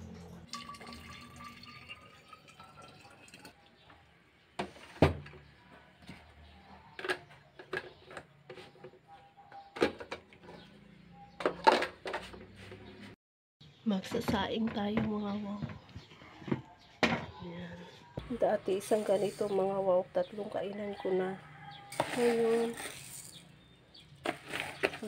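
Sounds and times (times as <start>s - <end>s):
water pouring into a container: 0.4s - 3.6s.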